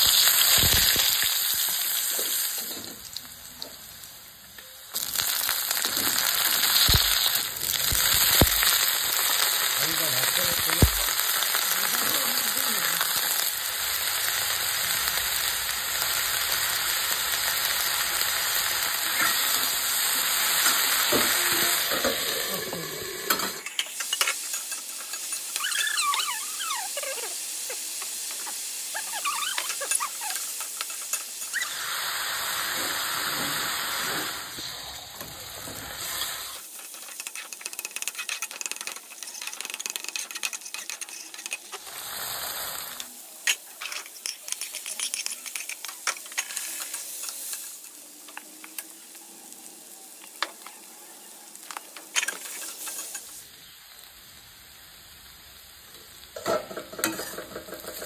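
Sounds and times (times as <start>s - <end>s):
vegetables sizzling in oil: 0.0s - 58.0s
spatula scraping a pan: 35.6s - 42.7s, 43.5s - 47.7s, 56.5s - 58.0s.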